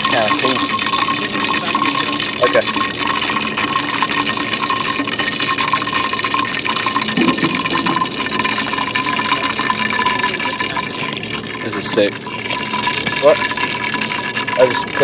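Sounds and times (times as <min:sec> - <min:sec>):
thin steady tone: 0:00.0 - 0:15.0.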